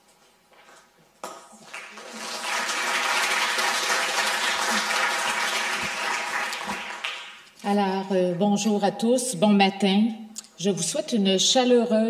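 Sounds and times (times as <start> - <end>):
audience applauding: 1.6 - 7.4.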